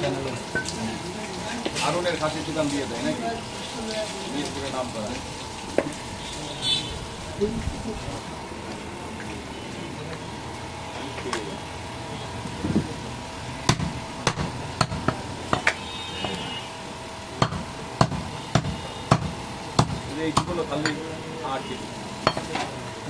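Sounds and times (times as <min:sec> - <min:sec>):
cleaver chopping meat and bone: 0:13.7 - 0:16.4, 0:17.4 - 0:20.9.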